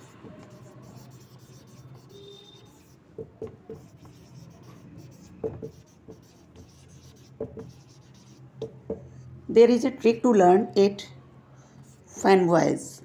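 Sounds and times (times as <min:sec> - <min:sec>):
marker pen writing on whiteboard: 0:00.0 - 0:09.2.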